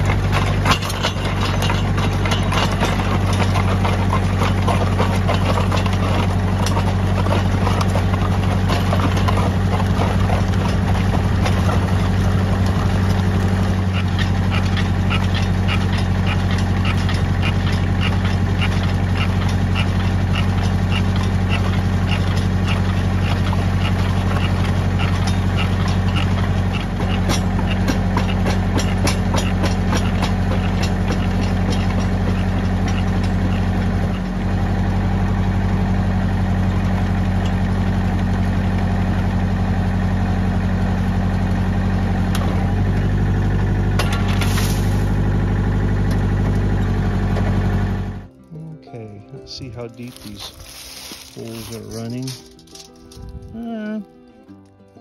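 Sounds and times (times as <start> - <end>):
regular ticking: 0.0 - 34.2
tractor engine running: 0.0 - 55.0.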